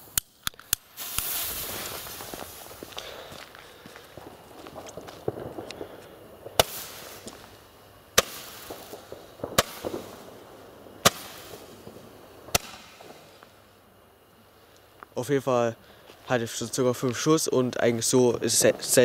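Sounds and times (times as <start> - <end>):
firework hiss: 0.0 - 19.0
roman candle popping: 0.1 - 7.6.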